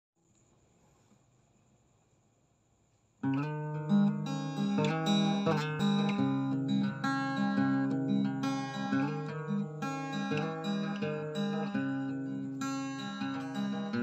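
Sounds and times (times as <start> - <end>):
fingerpicked acoustic guitar: 3.2 - 14.0.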